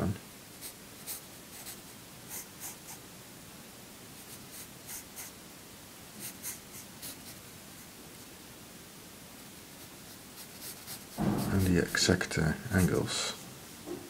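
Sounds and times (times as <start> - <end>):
pencil sketching on paper: 0.6 - 3.0, 4.2 - 5.4, 6.2 - 7.4, 9.8 - 13.4.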